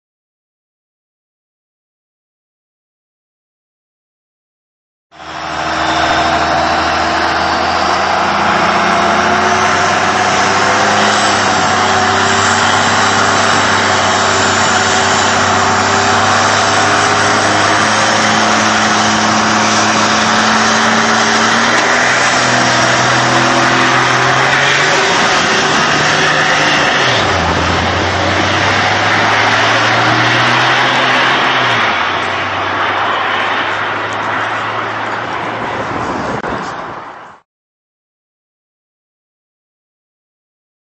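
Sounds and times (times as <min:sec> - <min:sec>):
diesel truck engine running: 0:05.2 - 0:37.4.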